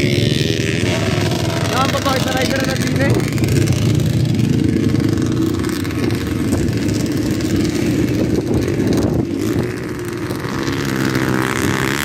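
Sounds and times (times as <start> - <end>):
dirt bike engines running: 0.0 - 12.0.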